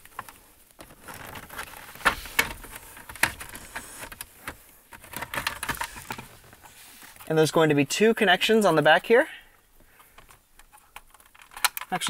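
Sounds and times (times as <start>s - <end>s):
plastic trim creaking: 0.0s - 6.7s.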